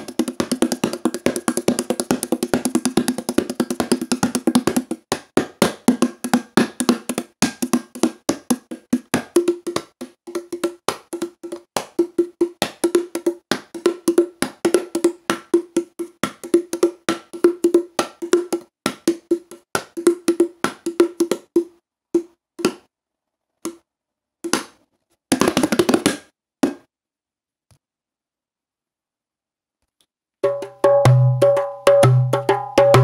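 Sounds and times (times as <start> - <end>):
hand drum beaten: 0.0 - 21.7, 30.4 - 33.0.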